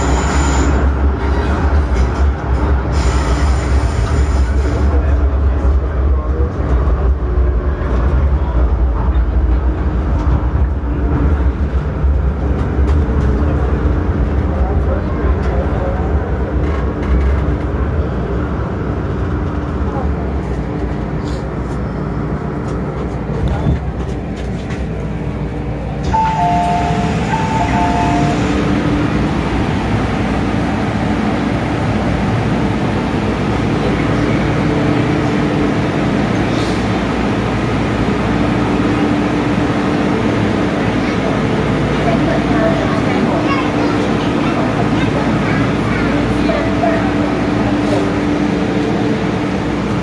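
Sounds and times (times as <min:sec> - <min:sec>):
train wheels rumbling in tunnel: 0:00.0 - 0:50.0
electronic door chime: 0:26.1 - 0:28.4.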